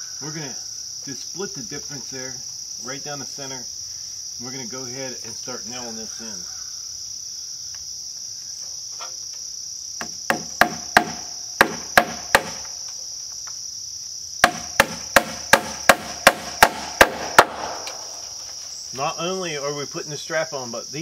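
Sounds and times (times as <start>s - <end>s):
hammer driving nails into wood: 10.0s - 12.6s, 14.4s - 18.0s.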